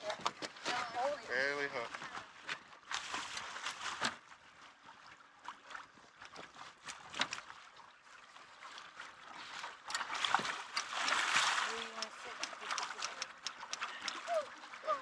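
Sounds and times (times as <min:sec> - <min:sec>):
fish thrashing and splashing: 0:01.9 - 0:04.2, 0:08.6 - 0:15.0.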